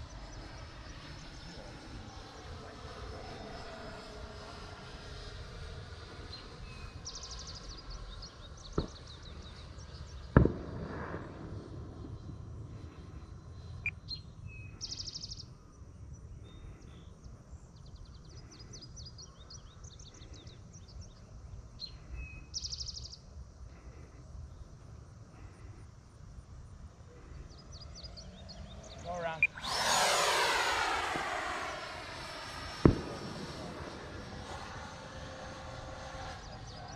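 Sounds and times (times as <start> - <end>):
distant jet whine: 0.0 - 36.9
wind rumble: 26.4 - 36.9
birds trilling: 27.0 - 32.6.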